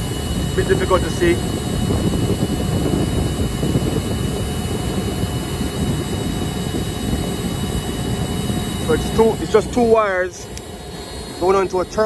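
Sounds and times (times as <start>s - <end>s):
rooftop machinery drone: 0.0s - 12.0s
faint steady high tone: 8.4s - 12.0s.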